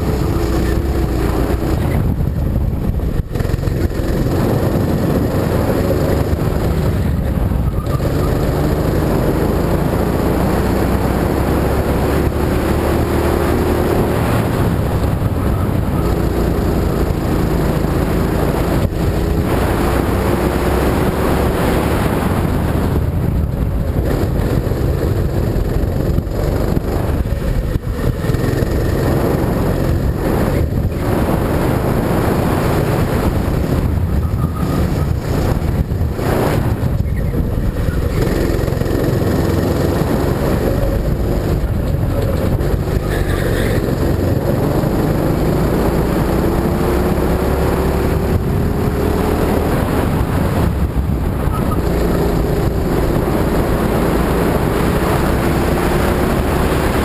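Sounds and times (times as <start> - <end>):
go-kart engine revving: 0.0 - 57.0
low rumble: 13.8 - 46.5.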